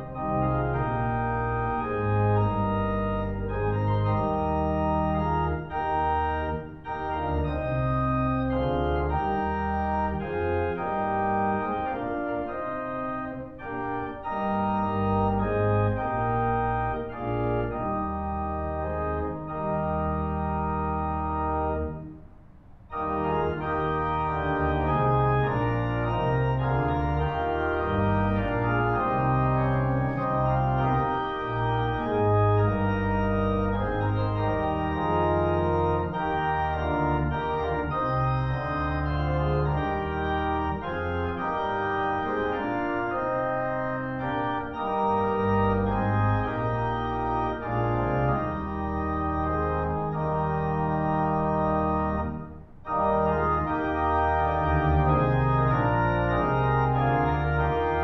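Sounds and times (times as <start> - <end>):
church organ chords: 0.0 - 58.0.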